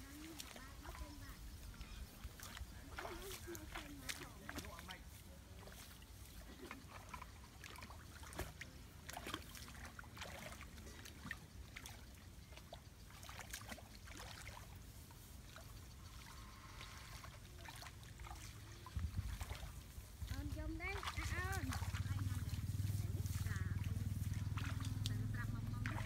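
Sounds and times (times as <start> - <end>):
splashes of wading in water: 0.0 - 26.0
stick poking water: 1.8 - 5.0, 5.6 - 14.8, 17.2 - 22.5, 23.8 - 26.0
low steady rumble: 18.8 - 26.0.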